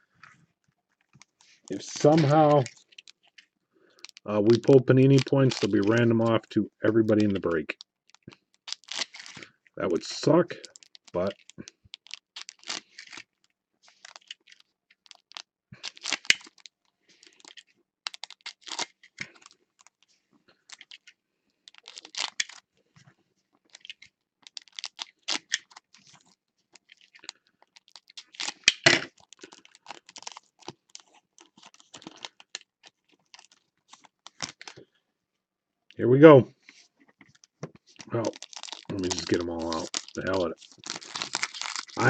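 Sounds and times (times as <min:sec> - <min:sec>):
plastic wrappers crinkling and tearing: 0:00.9 - 0:23.0, 0:23.6 - 0:34.9, 0:36.6 - 0:42.0.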